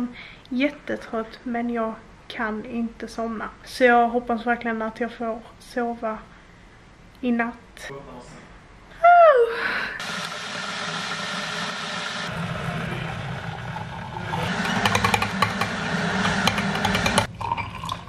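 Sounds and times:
water pouring into glass: 17.3 - 18.0.

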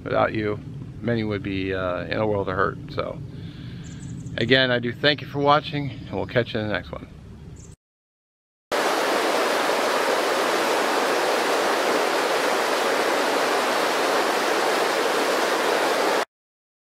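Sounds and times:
river rushing over stones: 8.7 - 16.3.

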